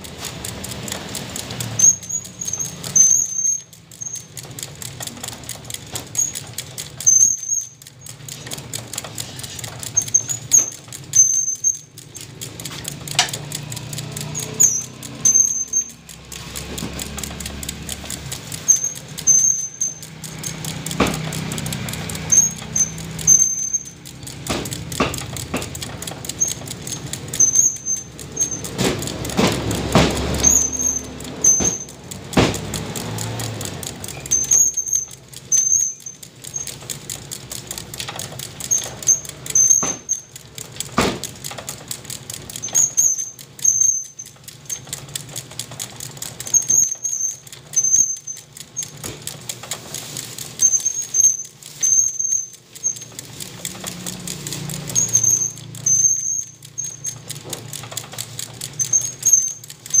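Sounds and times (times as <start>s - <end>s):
high squeaky chirps: 1.8s - 4.4s, 7.0s - 8.2s, 9.9s - 12.6s, 13.6s - 16.1s, 18.5s - 24.1s, 26.2s - 28.7s, 30.4s - 32.1s, 34.1s - 36.8s, 46.5s - 49.0s, 50.6s - 53.2s, 54.8s - 57.2s, 58.7s - 60.0s.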